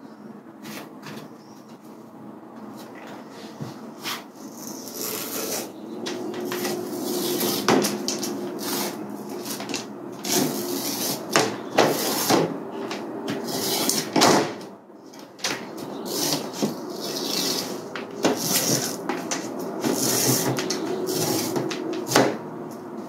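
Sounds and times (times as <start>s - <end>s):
rubber spline scraping out: 4.1s - 5.7s, 6.5s - 12.5s, 16.0s - 19.0s.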